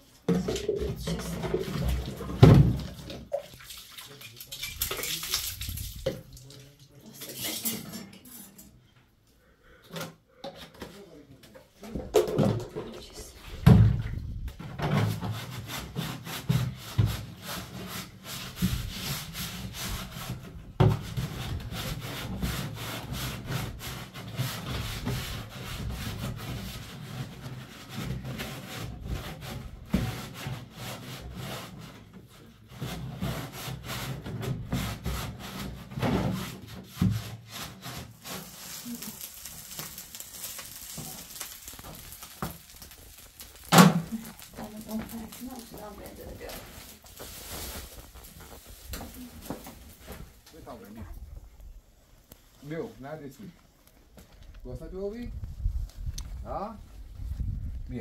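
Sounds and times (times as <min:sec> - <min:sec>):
hands scrubbing plastic can: 0:00.5 - 0:06.5, 0:15.1 - 0:50.4.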